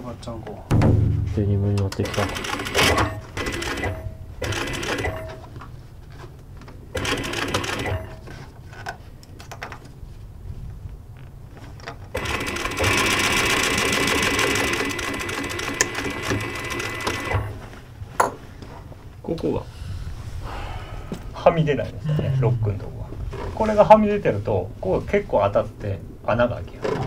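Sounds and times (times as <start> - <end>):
sewing machine stitching: 2.0 - 5.4, 6.9 - 8.2, 12.1 - 17.6.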